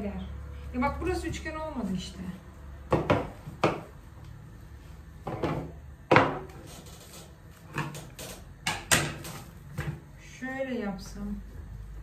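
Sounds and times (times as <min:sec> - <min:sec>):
cake log knocking on wooden table: 0:02.9 - 0:03.9.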